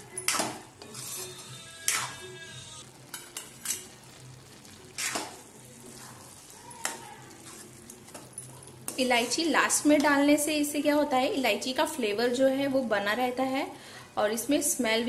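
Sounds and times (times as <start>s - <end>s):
metal spoon scraping a pan: 0.0s - 10.2s
faint background music: 0.0s - 15.0s.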